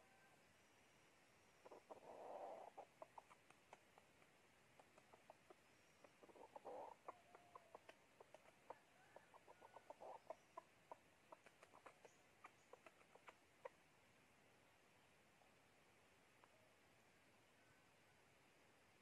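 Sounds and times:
chicken clucking: 1.6 - 4.1, 4.7 - 13.8
harsh chicken calls: 6.2 - 10.4.

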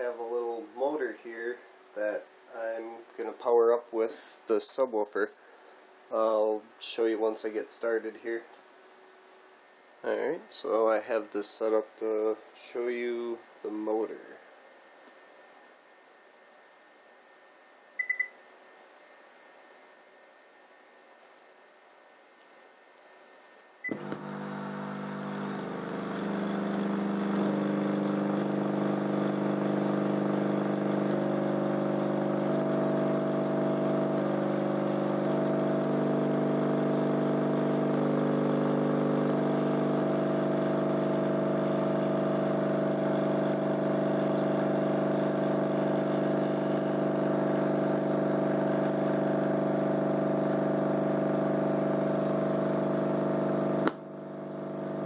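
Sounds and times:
subwoofer buzzy drone: 23.9 - 55.0.

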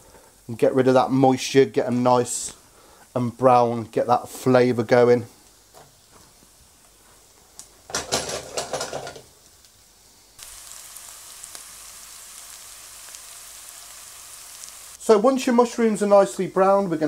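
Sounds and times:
mushrooms sizzling in a pan: 0.0 - 17.0.

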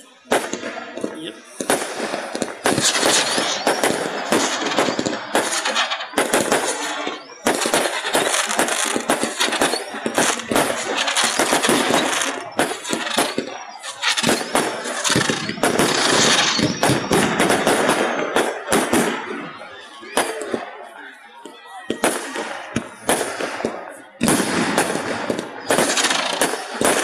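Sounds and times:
fireworks bangs and crackling: 0.0 - 27.0.

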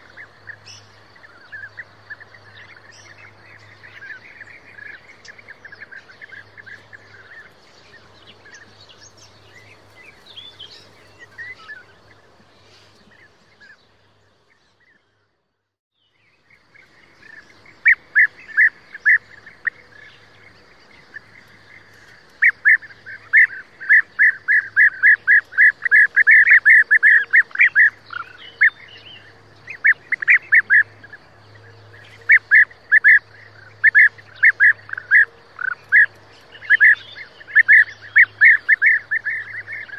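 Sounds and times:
birds purring calls: 16.4 - 39.9.

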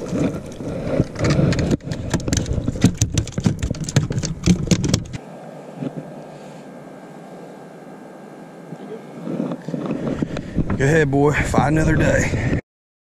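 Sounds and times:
fish thrashing in boat: 0.0 - 5.2
faint steady hiss: 5.2 - 12.3.

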